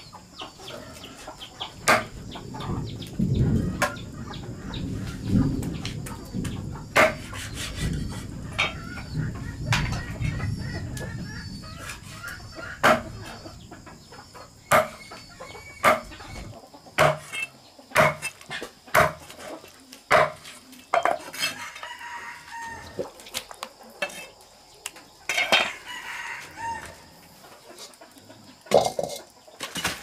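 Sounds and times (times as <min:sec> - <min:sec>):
chickens clucking: 0:00.0 - 0:30.0
chopping knocks: 0:14.7 - 0:15.0, 0:17.0 - 0:17.3, 0:18.0 - 0:18.3
rooster crowing: 0:21.4 - 0:23.2, 0:25.3 - 0:27.3.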